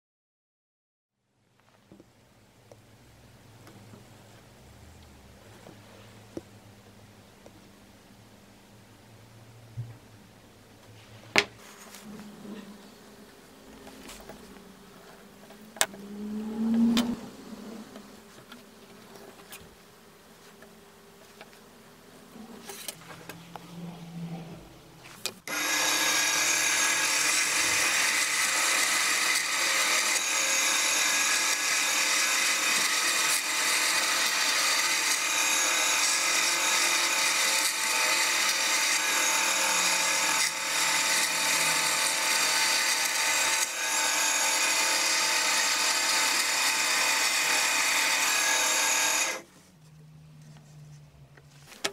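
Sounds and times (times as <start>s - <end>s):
bandsaw cutting board: 22.4s - 23.4s, 25.4s - 49.5s.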